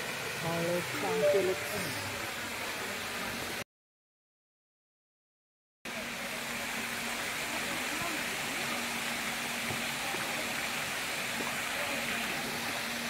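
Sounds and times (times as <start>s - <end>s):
fountain water spraying: 0.0s - 3.6s, 5.9s - 13.0s
faint voices: 0.4s - 2.2s.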